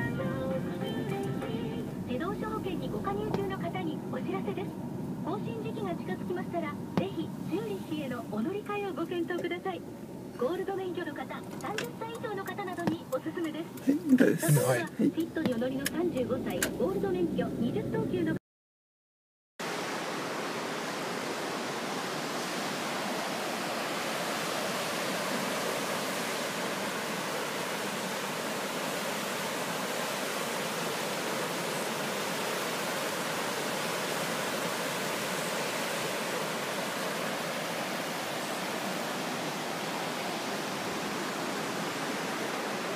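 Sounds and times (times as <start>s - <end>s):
river rushing through weir: 19.6s - 42.9s.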